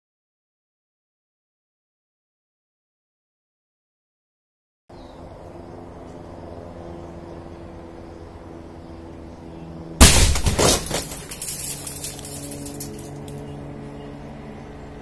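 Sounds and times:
steady low hum: 0:04.9 - 0:15.0
airbag deploying bang: 0:10.0 - 0:11.2.

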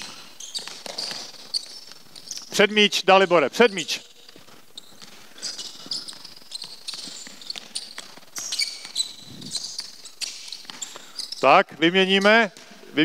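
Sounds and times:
sneakers squeaking on wood: 0:00.0 - 0:02.6, 0:03.5 - 0:12.8.

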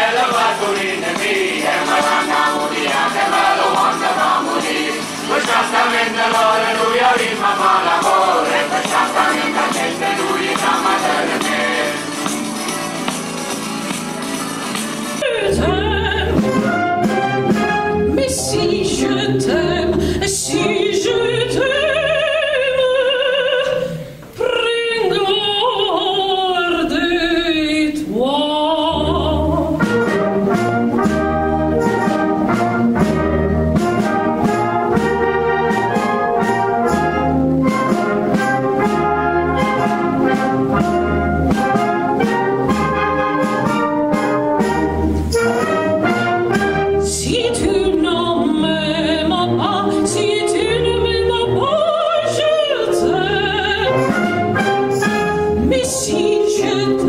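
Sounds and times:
wind band playing: 0:00.0 - 0:12.2, 0:15.4 - 0:20.9, 0:29.0 - 0:51.5, 0:53.0 - 0:56.8
woman singing into a microphone: 0:15.2 - 0:16.4, 0:18.2 - 0:29.8, 0:47.1 - 0:54.1, 0:55.6 - 0:57.0.

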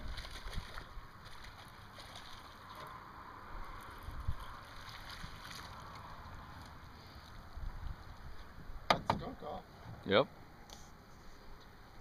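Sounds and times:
wind rumbling on microphone: 0:00.0 - 0:01.3, 0:03.2 - 0:06.4, 0:07.4 - 0:08.9.

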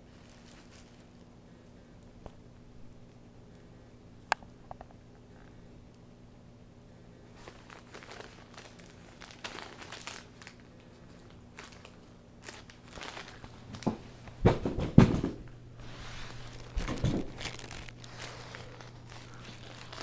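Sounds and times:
fabric tunnel crinkling and rustling: 0:00.0 - 0:01.2, 0:07.4 - 0:14.5, 0:15.8 - 0:20.0
kitten bumping in tunnel: 0:13.7 - 0:15.5.

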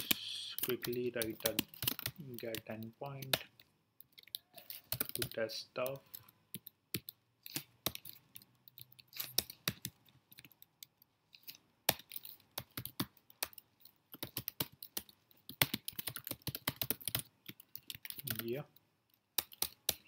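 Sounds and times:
keyboard typing: 0:00.0 - 0:20.0.

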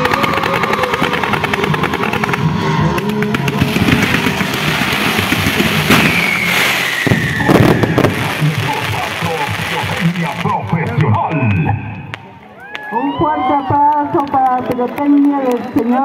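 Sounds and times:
recorded music: 0:00.0 - 0:11.5
fireworks sharp bangs: 0:00.0 - 0:12.4
fireworks crackling: 0:00.0 - 0:13.0, 0:13.7 - 0:16.0
firework whistle gliding down: 0:05.5 - 0:09.1.

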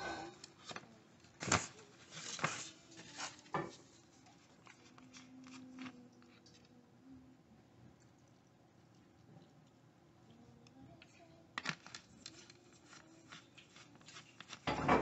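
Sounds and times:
paper bag crinkling: 0:00.4 - 0:06.6, 0:11.6 - 0:15.0.

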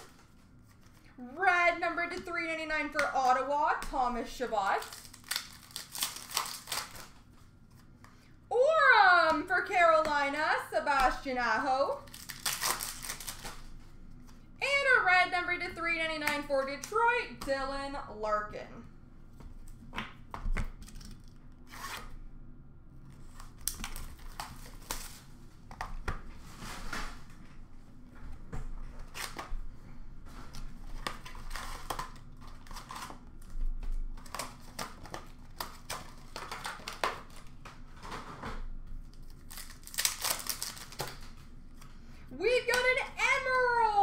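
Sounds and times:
wrappers crinkling and tearing: 0:04.4 - 0:08.0, 0:11.9 - 0:14.3, 0:23.2 - 0:25.4, 0:30.3 - 0:38.2, 0:39.0 - 0:41.9
cards rustling: 0:04.5 - 0:08.3.

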